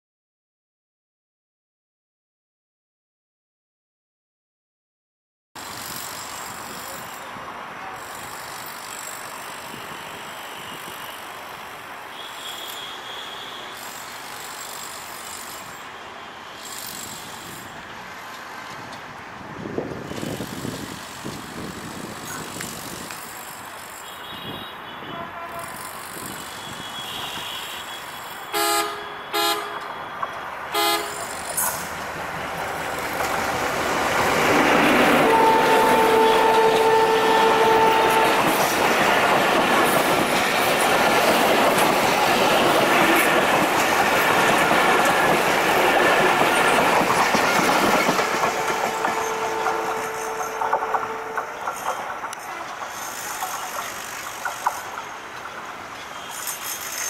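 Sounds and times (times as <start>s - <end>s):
traffic noise: 5.6s - 57.0s
train horn toots: 12.1s - 13.9s, 24.0s - 31.4s, 35.0s - 39.0s, 48.2s - 52.1s.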